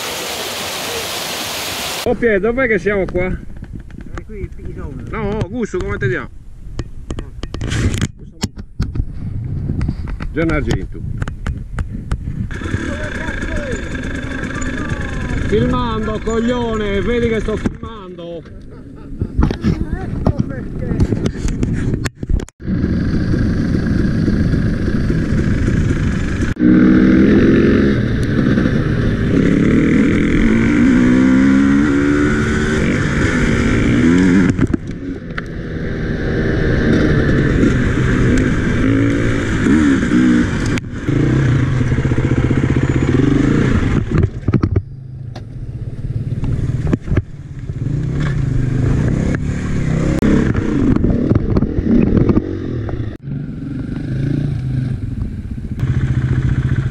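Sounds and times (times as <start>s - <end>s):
dirt bike engine revving: 12.5s - 18.1s, 22.6s - 56.9s.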